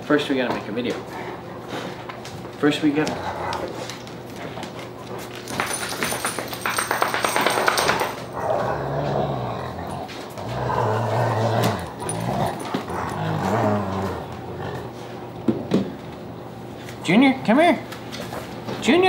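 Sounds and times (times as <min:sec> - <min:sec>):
dogs growling: 0:00.9 - 0:05.2, 0:07.9 - 0:15.6.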